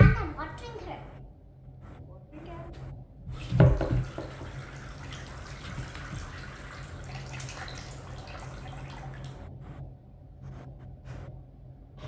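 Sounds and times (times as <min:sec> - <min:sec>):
water trickling into bowl: 0:04.2 - 0:09.4.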